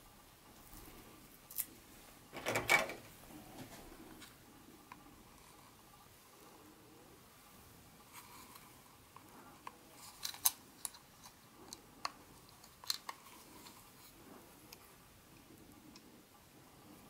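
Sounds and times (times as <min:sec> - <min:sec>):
small items clicking and crinkling: 0:09.6 - 0:13.8.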